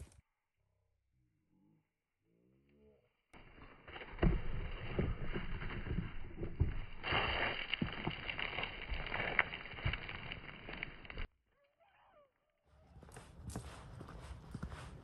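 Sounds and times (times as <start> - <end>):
rustling: 3.4 - 11.3
footsteps on gravel: 5.0 - 11.3.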